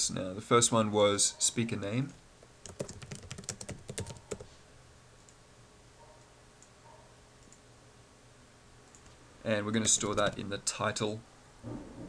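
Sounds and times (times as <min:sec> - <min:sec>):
faint low hum: 0:00.0 - 0:12.0
typing on keyboard: 0:02.6 - 0:04.5.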